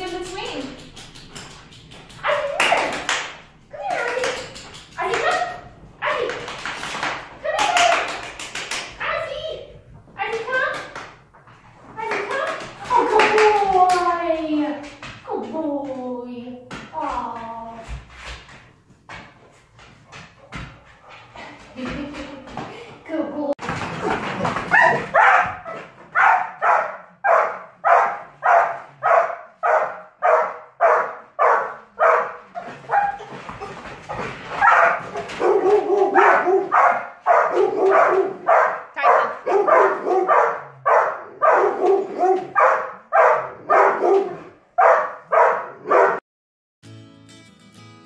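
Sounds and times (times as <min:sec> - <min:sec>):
dog barking: 0:24.7 - 0:33.3, 0:34.6 - 0:46.2.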